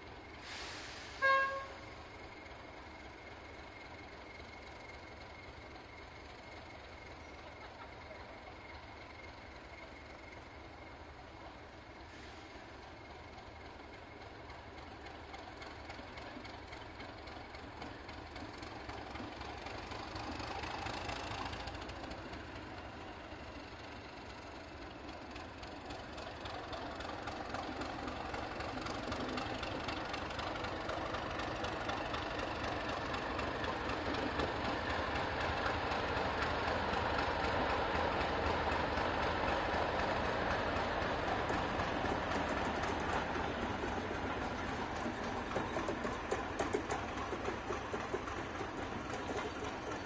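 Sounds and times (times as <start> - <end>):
diesel locomotive approaching: 0.0 - 50.0.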